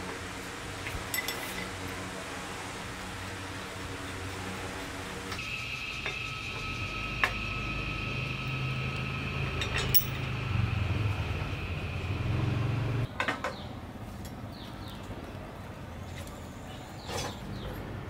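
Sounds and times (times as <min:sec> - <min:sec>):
steady hum: 0:03.9 - 0:13.1
faint high whine: 0:05.3 - 0:13.1.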